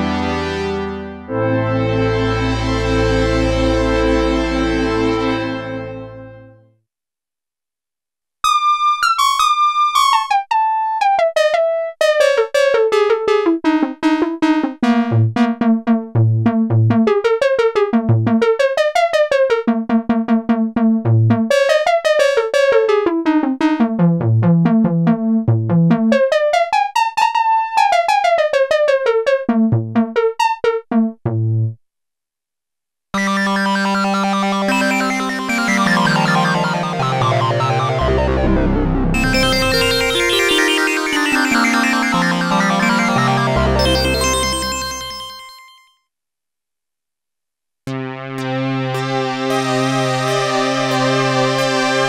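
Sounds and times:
low synth bass notes: 14.8 - 17.2, 23.8 - 26.2, 34.8 - 45.2, 47.9 - 52.0
synthesizer plucked note runs: 34.2 - 45.4, 47.9 - 52.0.

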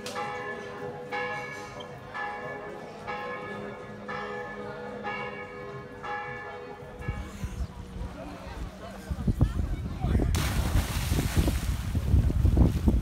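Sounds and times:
church bell tolling: 0.0 - 7.5.

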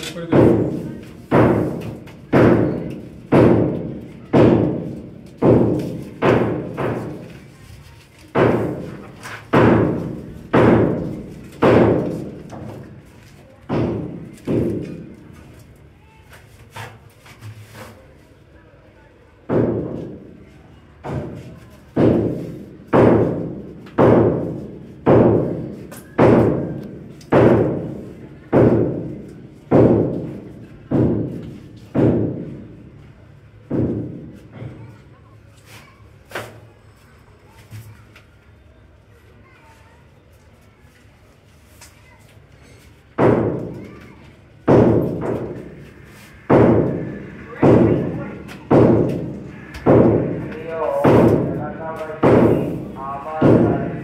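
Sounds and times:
heavy echoing thuds: 0.2 - 7.2, 9.5 - 12.7, 43.2 - 43.9, 44.6 - 54.0
hammer blows on brick wall: 0.3 - 7.3, 8.3 - 12.8, 21.0 - 32.7, 33.7 - 34.6, 43.1 - 44.0, 44.6 - 54.0.

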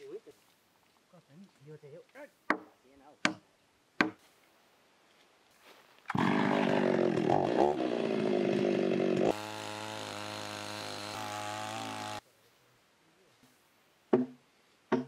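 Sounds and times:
chainsaw cutting log: 6.1 - 12.2.

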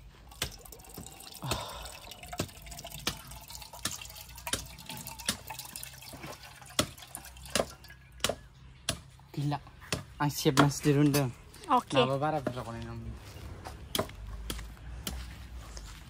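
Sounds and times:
water trickling into metal saucepan: 0.0 - 8.2.

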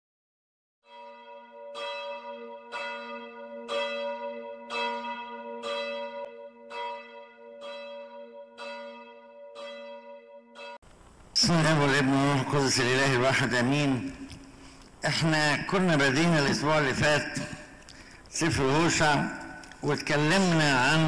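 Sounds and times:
church bell tolling: 0.9 - 10.8, 18.4 - 21.0.

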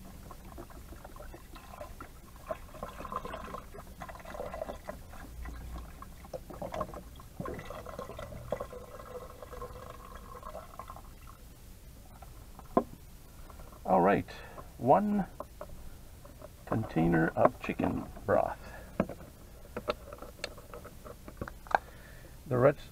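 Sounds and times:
broth pouring into metal pot: 0.2 - 11.4.

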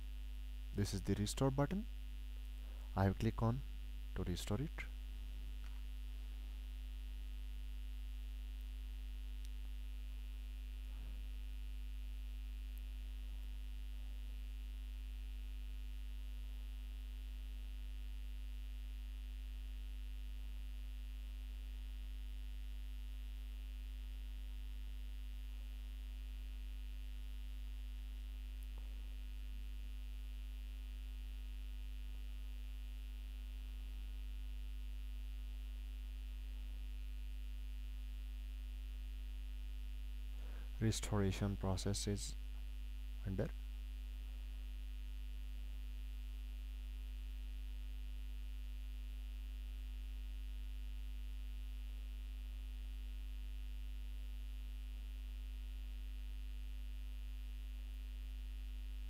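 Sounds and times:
low electrical hum: 0.0 - 59.0.

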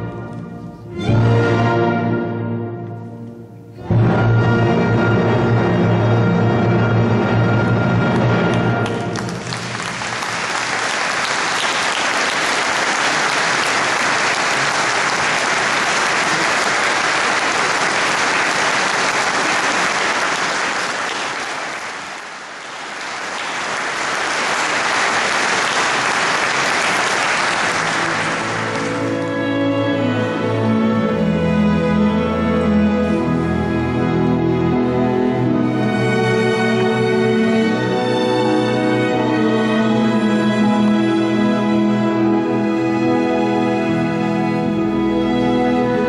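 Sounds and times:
music: 0.0 - 14.4, 24.9 - 46.0
audience applauding: 8.1 - 29.6.

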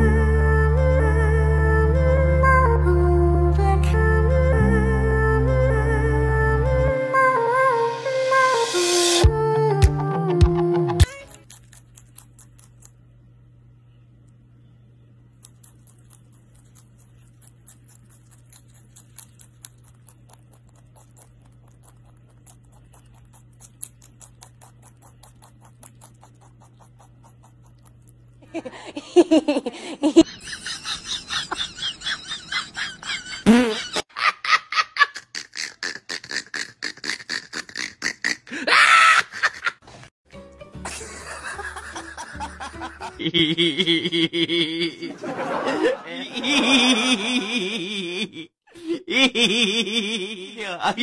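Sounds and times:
low steady hum: 0.0 - 8.6, 9.3 - 34.0
rabbit chewing leaves: 11.0 - 28.5.

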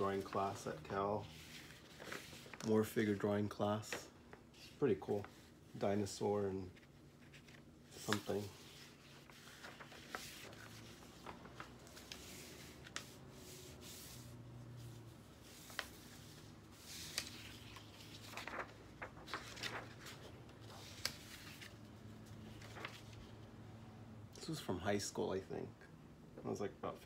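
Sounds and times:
paper sheets rustling and sliding: 0.0 - 23.5.

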